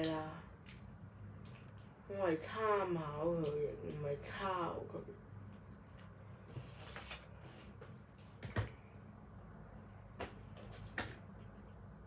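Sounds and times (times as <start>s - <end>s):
paper rustling: 5.8s - 8.5s.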